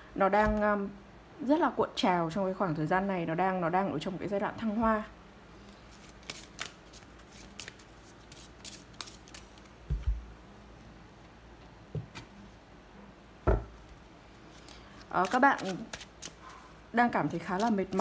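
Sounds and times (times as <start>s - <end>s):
soft thumps: 11.9s - 12.3s, 13.5s - 13.8s.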